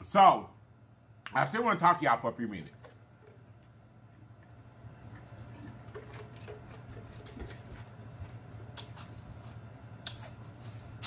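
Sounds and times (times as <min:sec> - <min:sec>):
steady low hum: 0:00.0 - 0:11.0
lip smacks and mouth clicks: 0:08.8 - 0:09.1, 0:10.0 - 0:10.6.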